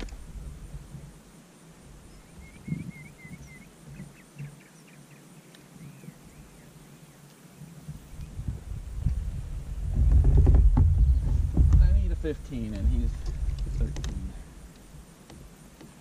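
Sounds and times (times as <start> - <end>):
songbird singing: 0.0 - 16.0
soft low knocks: 7.8 - 16.0.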